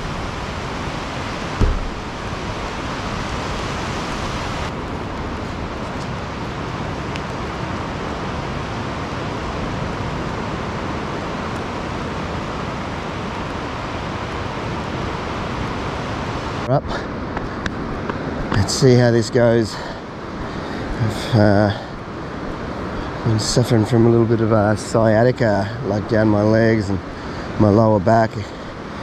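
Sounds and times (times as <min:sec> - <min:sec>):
ocean surf: 0:00.0 - 0:29.0
wind: 0:00.0 - 0:29.0
low thump: 0:01.6 - 0:02.2.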